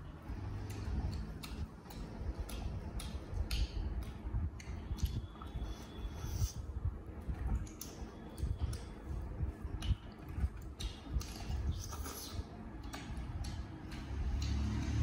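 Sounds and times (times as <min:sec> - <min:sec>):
chewing and mouth smacking: 0:00.3 - 0:14.8.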